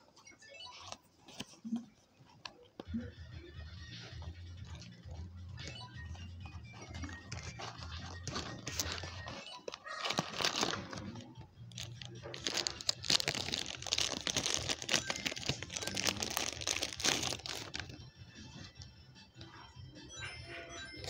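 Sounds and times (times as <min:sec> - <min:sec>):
plastic bag crinkling: 0:07.0 - 0:18.0.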